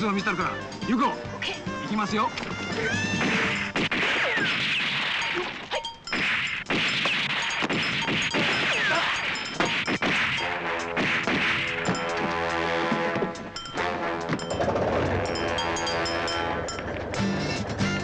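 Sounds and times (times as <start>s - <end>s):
punch impacts: 3.2s - 5.2s, 6.2s - 8.9s, 9.6s - 12.0s
action music: 6.6s - 18.0s.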